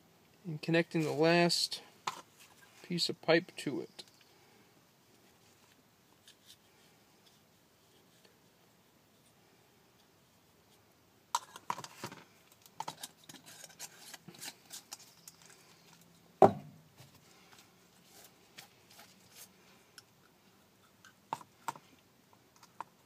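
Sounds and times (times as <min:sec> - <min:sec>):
sharp knock: 0:16.4 - 0:16.8.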